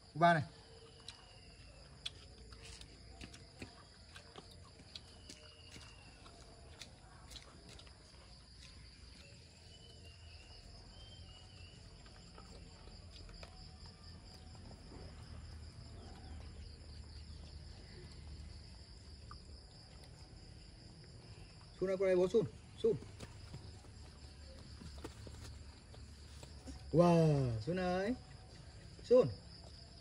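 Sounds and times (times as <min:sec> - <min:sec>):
high-pitched insect chorus: 0:07.8 - 0:30.0.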